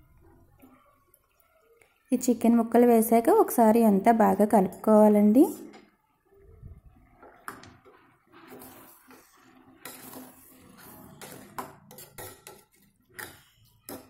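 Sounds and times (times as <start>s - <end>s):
metal spoon scraping pot: 7.8s - 14.0s.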